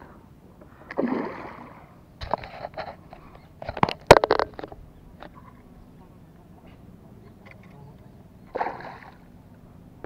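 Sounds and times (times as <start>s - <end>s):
sharp knocks and rattles: 3.6s - 4.8s
fish splashing at the surface: 8.5s - 9.2s.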